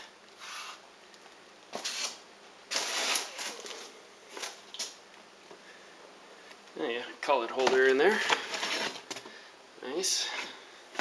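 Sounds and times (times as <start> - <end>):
packaging rustling and scraping: 1.7 - 4.8, 7.6 - 9.3.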